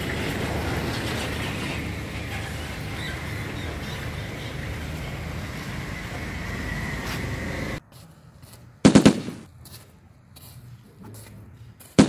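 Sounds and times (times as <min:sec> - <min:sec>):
machine-gun fire: 0:08.8 - 0:09.5.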